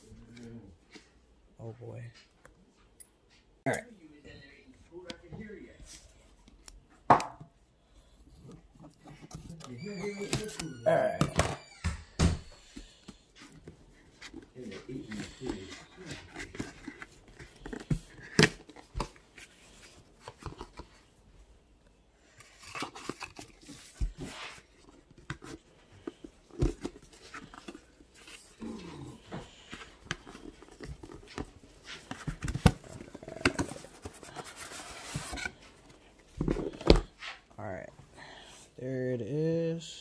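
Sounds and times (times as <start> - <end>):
cardboard scraping and tapping: 22.4 - 37.4.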